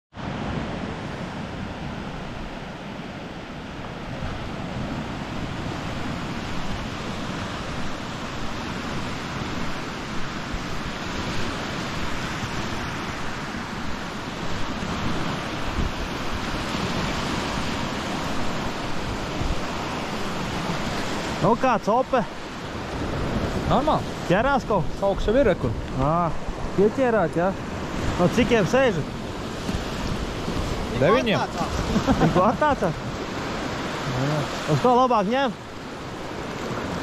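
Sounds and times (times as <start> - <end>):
wind buffeting microphone: 0.2 - 34.8
surf washing onto beach: 0.2 - 37.0.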